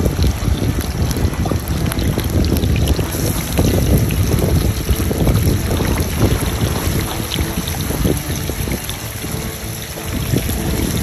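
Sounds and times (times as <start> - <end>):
wind buffeting the microphone: 0.0 - 11.0.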